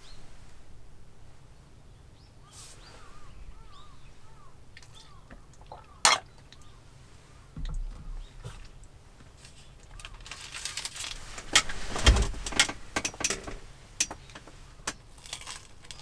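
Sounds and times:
bird calling: 0:02.2 - 0:08.7.

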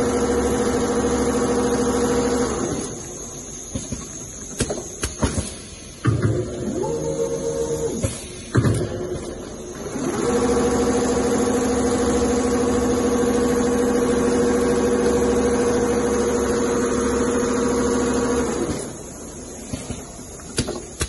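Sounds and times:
sewing machine humming: 0:00.0 - 0:03.1, 0:08.9 - 0:19.0.

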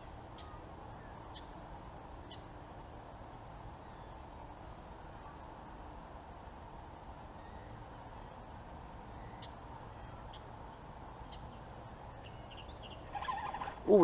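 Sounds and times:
high bird chirps: 0:12.8 - 0:14.0.

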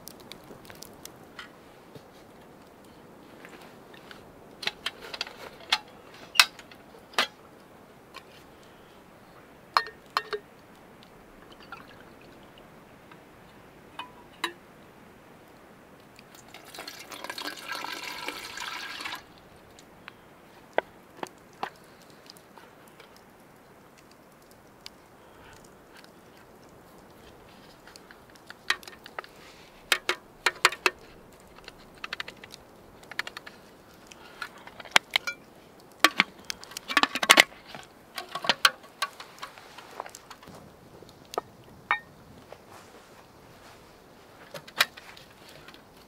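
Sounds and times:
liquid pouring into container: 0:16.4 - 0:19.3.

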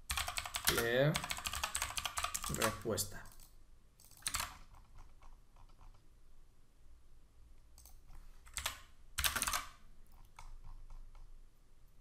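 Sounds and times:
computer keyboard typing: 0:00.1 - 0:06.0, 0:07.8 - 0:11.3.

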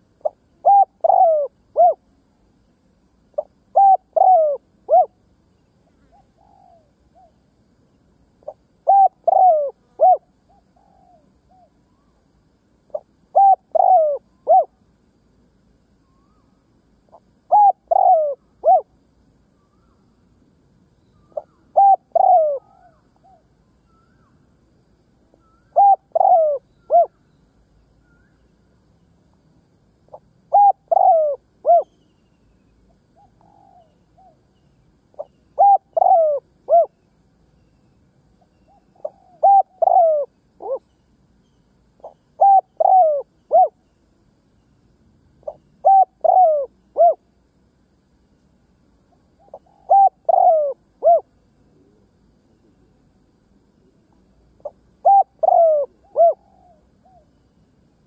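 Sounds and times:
faint distant dove coo: 0:00.0 - 0:02.3, 0:03.3 - 0:07.8, 0:08.4 - 0:14.9, 0:16.0 - 0:20.2, 0:21.1 - 0:24.4, 0:25.3 - 0:27.4, 0:30.1 - 0:32.4, 0:33.0 - 0:37.1, 0:38.4 - 0:41.0, 0:42.0 - 0:44.0, 0:45.4 - 0:47.3, 0:49.3 - 0:52.9, 0:53.6 - 0:57.6
dove cooing: 0:00.2 - 0:02.0, 0:03.4 - 0:05.2, 0:06.1 - 0:07.3, 0:08.4 - 0:11.7, 0:12.9 - 0:14.8, 0:17.1 - 0:19.0, 0:21.3 - 0:23.5, 0:25.4 - 0:27.2, 0:30.1 - 0:32.0, 0:33.2 - 0:34.4, 0:35.1 - 0:37.0, 0:38.7 - 0:40.8, 0:42.0 - 0:43.8, 0:45.4 - 0:47.2, 0:49.4 - 0:52.1, 0:54.6 - 0:57.3.

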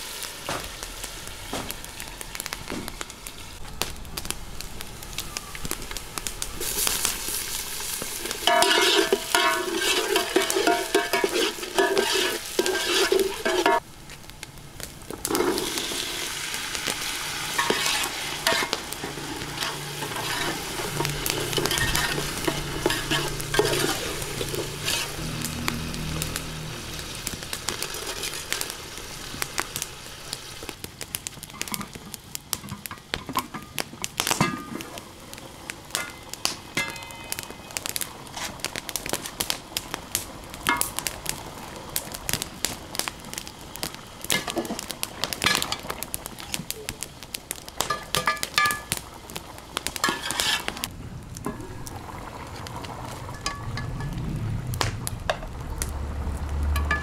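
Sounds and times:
pots bubbling and sizzling: 0:00.0 - 0:57.0
wood fire crackling: 0:00.0 - 0:57.0
ladle clinking on metal pots: 0:08.4 - 0:13.8, 0:47.8 - 0:48.9, 0:56.8 - 0:57.0.

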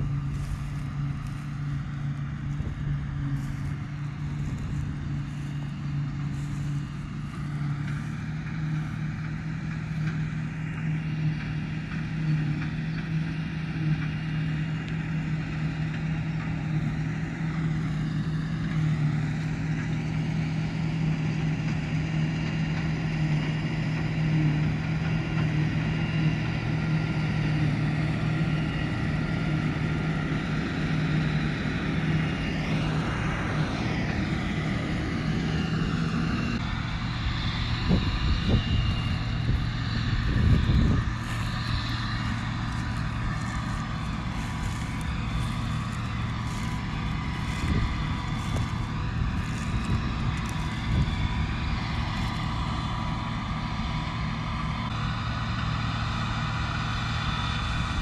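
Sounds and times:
high whine bending in pitch: 0:00.0 - 0:13.1, 0:31.4 - 0:58.0
machine hum: 0:00.0 - 0:21.8, 0:24.2 - 0:58.0.

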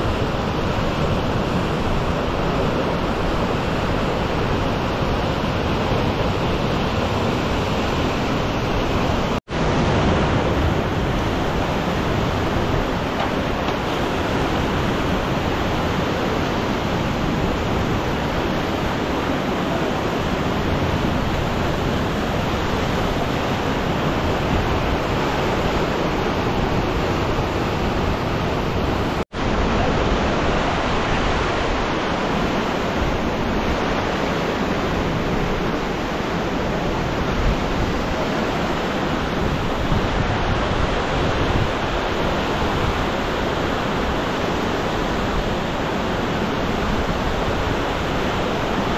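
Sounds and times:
river rushing over rapids: 0:00.0 - 0:48.9.

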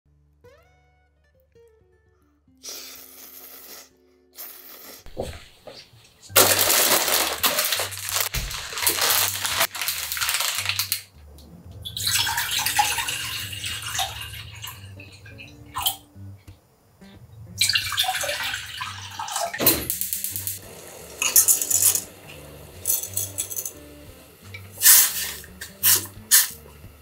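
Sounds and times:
soft background music: 0:00.4 - 0:27.0
water pouring into saucepan: 0:06.4 - 0:11.0, 0:11.8 - 0:16.0, 0:17.6 - 0:26.5
plastic packet crinkling: 0:06.4 - 0:11.1.

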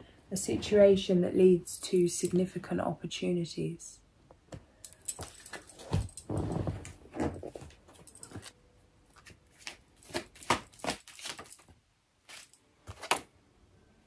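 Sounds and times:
cards being shuffled: 0:09.2 - 0:13.3.

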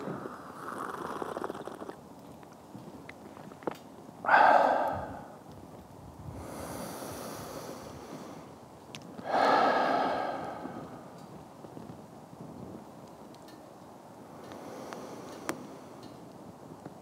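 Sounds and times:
man breathing deeply: 0:04.2 - 0:05.4, 0:06.3 - 0:08.6, 0:09.2 - 0:11.4, 0:14.4 - 0:16.0.

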